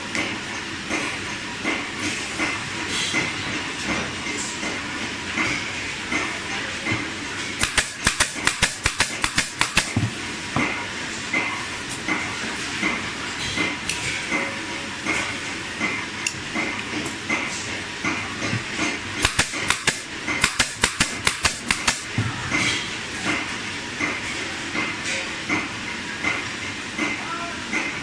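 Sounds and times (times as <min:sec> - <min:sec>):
workshop machine noise: 0:00.0 - 0:28.0
pneumatic staple gun shots: 0:07.6 - 0:10.0, 0:19.2 - 0:22.1.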